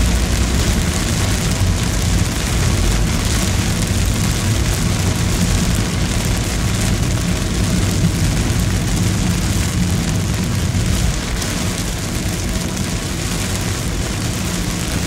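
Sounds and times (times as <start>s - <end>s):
engine and road noise: 0.0s - 15.0s
heavy rain on car roof: 0.0s - 15.0s.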